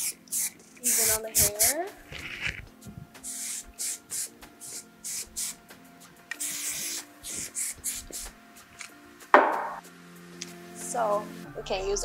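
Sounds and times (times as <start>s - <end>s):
hairspray hissing: 0.0s - 5.7s, 6.3s - 9.6s.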